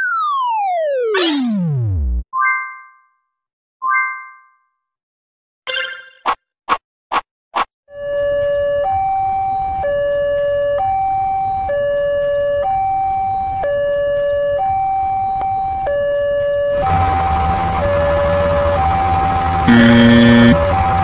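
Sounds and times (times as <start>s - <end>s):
two-tone crossing warning alarm: 8.2s - 21.0s
short tones: 16.8s - 21.0s.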